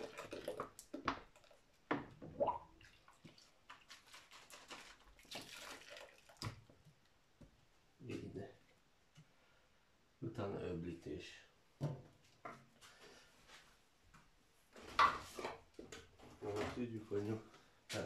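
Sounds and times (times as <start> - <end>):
water sloshing in a plastic basin: 0.0 - 7.0.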